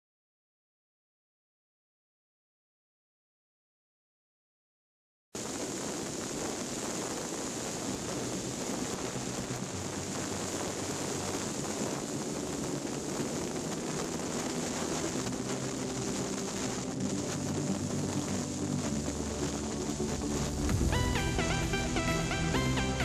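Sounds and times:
wind noise: 5.4s - 23.0s.

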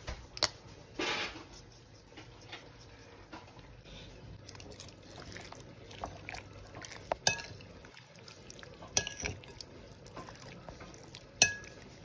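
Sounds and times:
clinks against a glass bowl: 7.2s - 7.6s, 8.9s - 9.5s, 11.4s - 11.8s.

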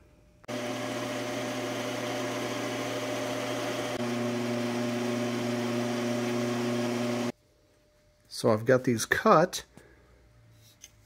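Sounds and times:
metal lathe whining: 0.5s - 7.3s.

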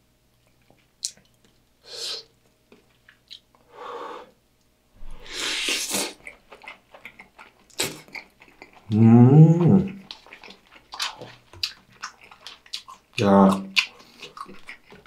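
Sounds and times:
wet chewing clicks: 0.4s - 1.6s, 2.7s - 3.6s, 5.8s - 15.0s
soft breathing: 3.6s - 4.4s, 5.0s - 5.9s
loud slurp: 5.1s - 6.2s.

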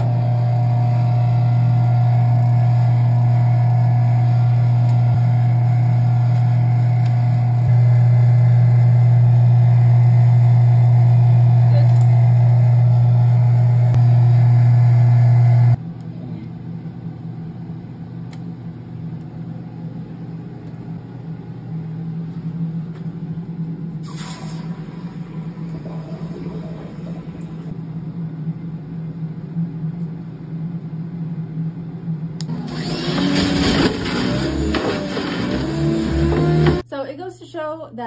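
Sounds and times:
vacuum pump humming: 0.0s - 15.8s, 32.4s - 36.9s
quiet machine hum: 0.0s - 38.0s.

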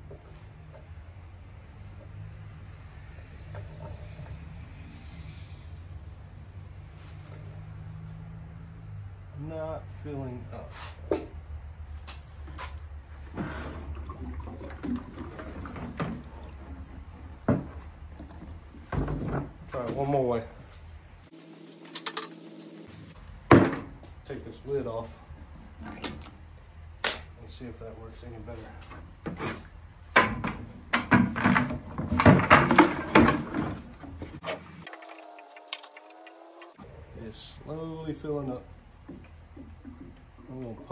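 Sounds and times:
water sloshing in plastic jug: 13.2s - 17.7s.

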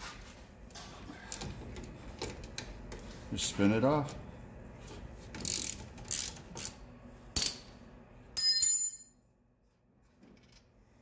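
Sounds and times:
ratchet wrench clicking: 5.4s - 6.8s
metallic clink: 8.4s - 9.3s.

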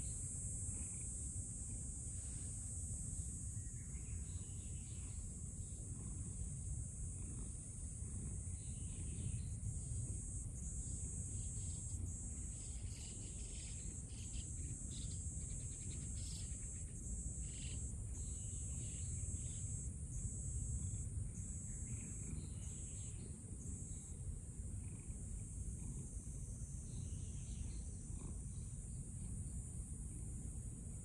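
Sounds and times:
insects chirring: 0.0s - 31.0s.

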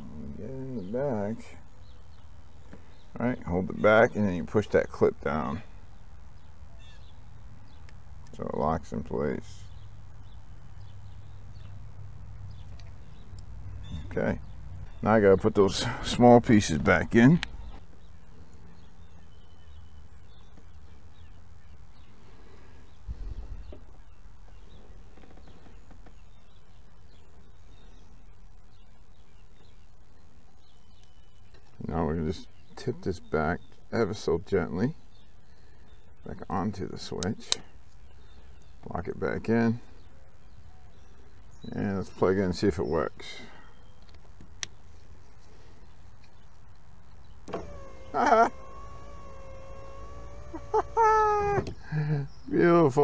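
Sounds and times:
distant bird chirps: 0.0s - 53.0s
outdoor background noise: 0.0s - 53.0s
power window motor humming: 47.4s - 51.8s
wavering squeal: 47.6s - 51.6s.

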